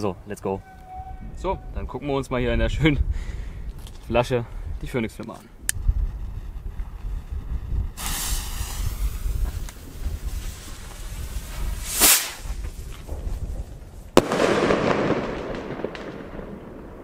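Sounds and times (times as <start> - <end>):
firework crackling: 5.8 - 17.0
firework bang: 7.9 - 10.8, 11.4 - 17.0
rocket launch whoosh: 7.9 - 16.5
fuse hissing: 8.0 - 12.5.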